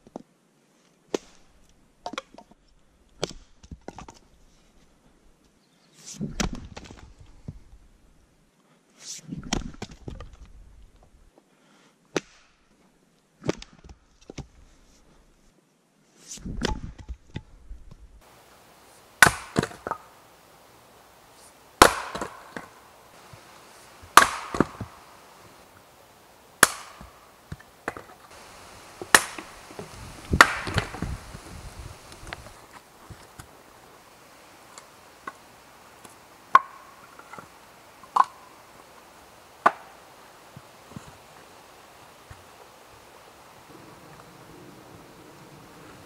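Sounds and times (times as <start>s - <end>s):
wood clattering: 18.4s - 25.8s, 26.6s - 33.5s
hatchet chopping wood: 19.0s - 20.3s, 21.4s - 25.3s, 26.6s - 28.1s, 29.0s - 31.2s, 36.0s - 37.4s, 39.6s - 40.0s
axe strikes into firewood: 19.2s - 20.1s, 21.8s - 22.8s, 24.1s - 25.0s, 26.6s - 28.1s, 29.0s - 31.2s.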